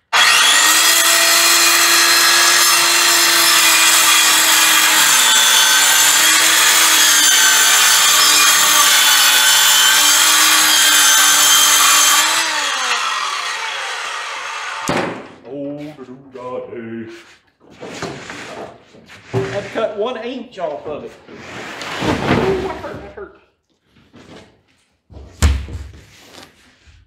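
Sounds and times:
power saw cutting plywood: 0.0s - 15.4s.

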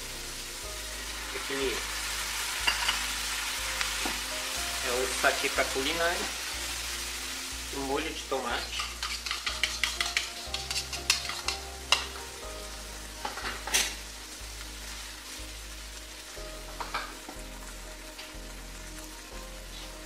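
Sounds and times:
food sizzling in a frying pan: 0.0s - 20.0s
utensil scraping a pan: 8.6s - 12.2s.

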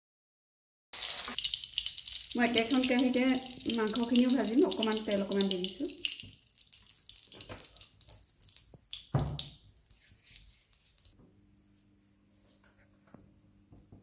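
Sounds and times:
hot oil crackling: 1.0s - 11.2s
thump: 9.1s - 9.5s.

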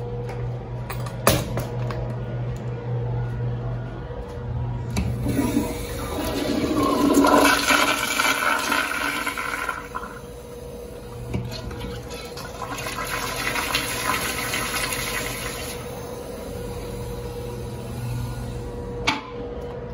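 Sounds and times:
toilet flushing: 5.0s - 18.6s.

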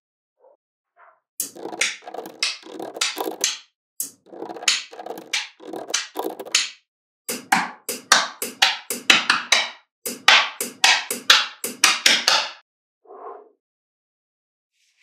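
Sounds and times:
woody percussive music: 1.4s - 12.6s.

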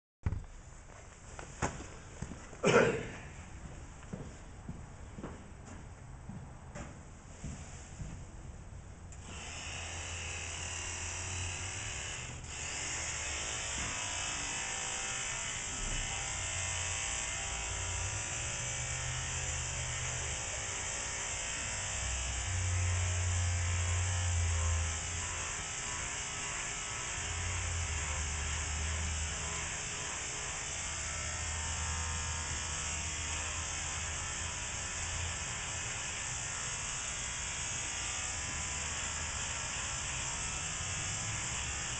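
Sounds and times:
electric clippers buzzing: 9.1s - 41.9s.

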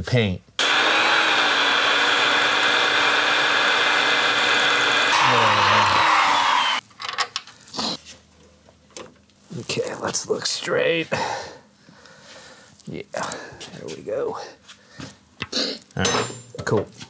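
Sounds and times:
electric drill boring through metal: 0.6s - 6.8s.

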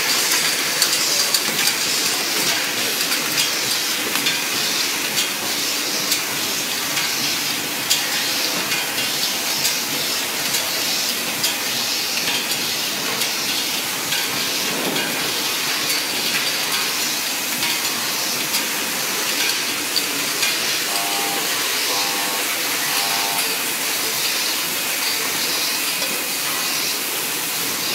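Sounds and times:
machine hissing: 20.6s - 24.2s
short beeps: 20.9s - 23.6s.

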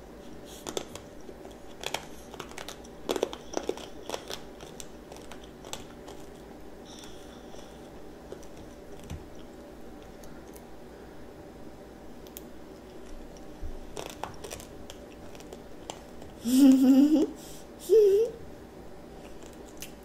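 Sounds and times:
child chewing hard candy: 0.2s - 10.7s, 12.7s - 16.8s, 19.2s - 20.0s
child vocal sound: 16.4s - 18.4s.

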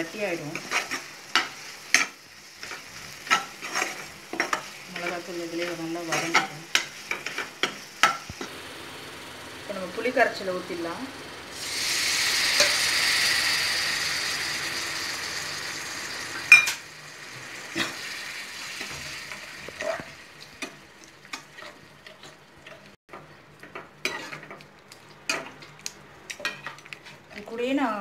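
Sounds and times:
liquid sizzling in hot pan: 0.0s - 23.0s, 23.6s - 27.3s
spoon stirring in pan: 0.5s - 8.5s, 18.7s - 27.5s.

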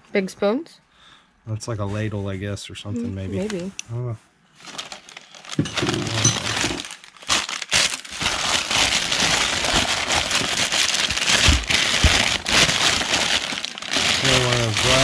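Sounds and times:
packing paper rustling: 4.6s - 15.0s.

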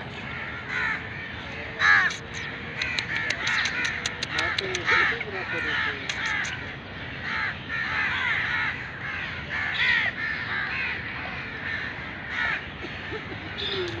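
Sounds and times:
crows cawing: 0.1s - 14.0s.

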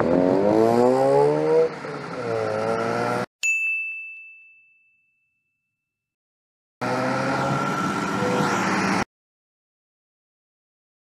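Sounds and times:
road noise: 0.0s - 3.3s, 6.8s - 9.1s
high ding sound effect: 3.4s - 5.8s
trucks driving past: 6.8s - 9.1s.

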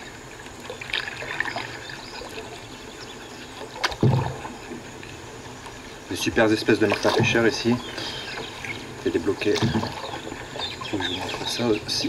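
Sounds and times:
water dripping off paddle: 6.8s - 12.0s.

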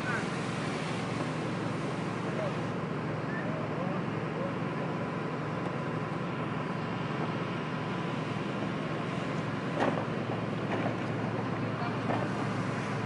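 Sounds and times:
fire engine pump running: 0.0s - 13.0s.

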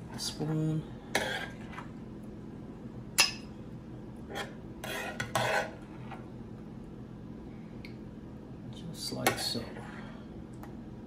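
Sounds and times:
spoon scraping a pan: 1.1s - 1.9s, 4.3s - 6.2s.

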